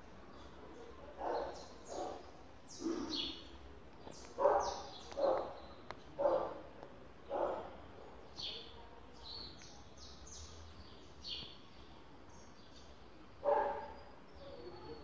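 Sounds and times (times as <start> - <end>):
dog barking: 1.2 - 2.2, 4.4 - 5.6, 6.2 - 6.6, 7.3 - 7.8, 13.4 - 14.0.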